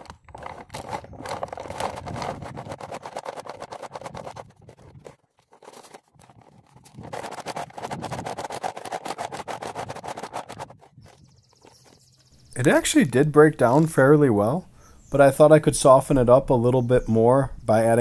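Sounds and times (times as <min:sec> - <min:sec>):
hide scraping and crinkling: 0:00.0 - 0:12.8.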